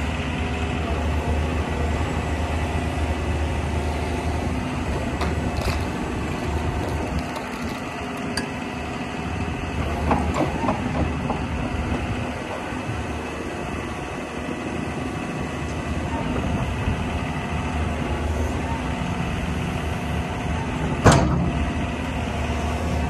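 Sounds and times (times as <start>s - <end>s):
excavator diesel engine running: 0.0s - 23.0s
hydraulic boom moving: 5.0s - 8.6s
metal clanks: 5.2s - 8.6s.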